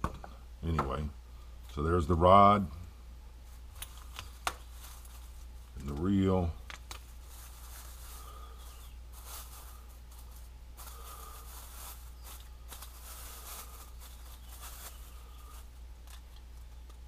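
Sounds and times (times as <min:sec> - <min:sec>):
plastic wrapping crinkling: 0:03.5 - 0:17.0.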